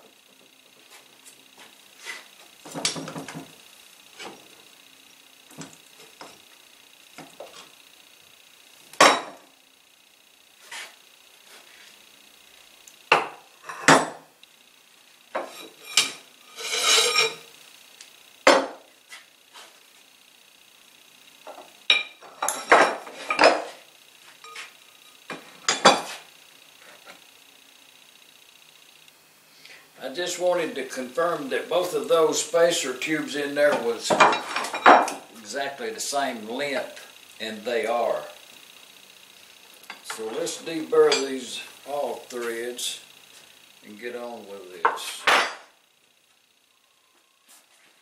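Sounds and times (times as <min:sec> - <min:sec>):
rattling scrape: 0:15.4 - 0:17.4.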